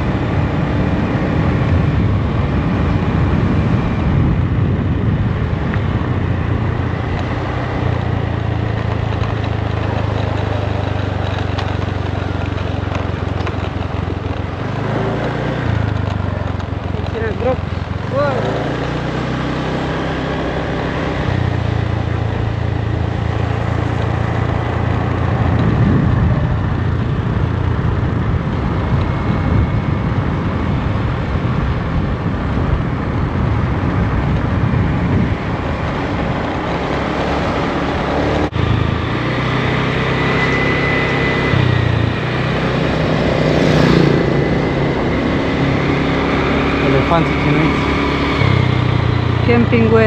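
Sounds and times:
scooter engine running: 0.0s - 50.0s.

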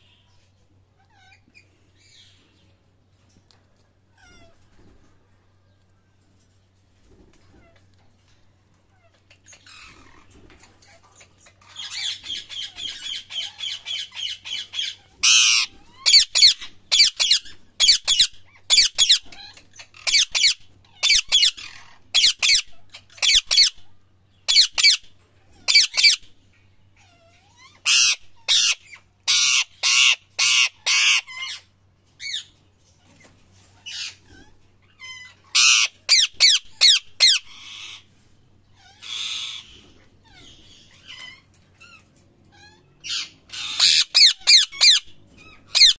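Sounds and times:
parakeet chattering: 10.9s - 23.9s, 24.5s - 25.0s, 25.7s - 26.3s, 27.0s - 32.4s, 33.8s - 38.0s, 38.8s - 45.9s
parakeet screeching: 11.6s - 23.9s, 24.5s - 25.0s, 25.7s - 26.3s, 27.0s - 32.5s, 33.8s - 38.1s, 38.8s - 45.9s.

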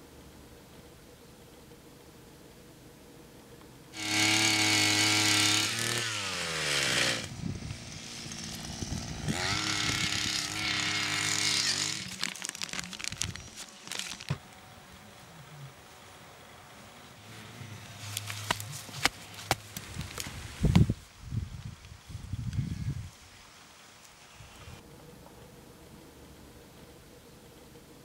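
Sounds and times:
small power tool engine running: 4.0s - 12.4s.

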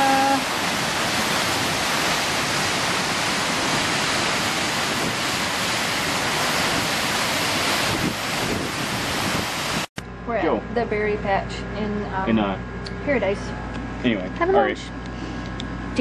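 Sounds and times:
waterfall roaring: 0.0s - 10.6s.

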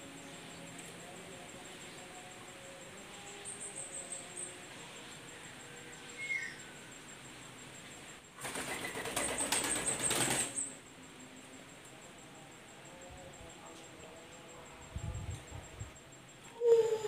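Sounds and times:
dove wings flapping: 8.4s - 10.7s.

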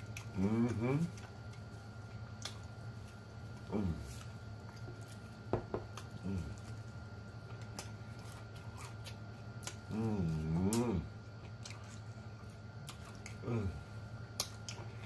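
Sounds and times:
wet chewing and lip-smacking: 0.0s - 15.0s
man humming mmm: 0.3s - 1.2s, 3.7s - 4.2s, 6.2s - 6.6s, 9.8s - 11.2s, 13.4s - 13.9s.

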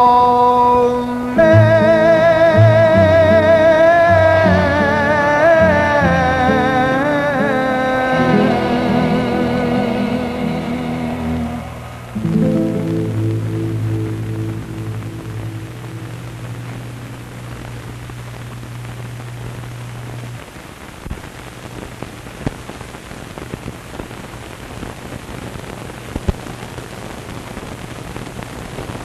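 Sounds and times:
film soundtrack hiss: 0.0s - 29.0s
low music chord: 1.4s - 17.2s.

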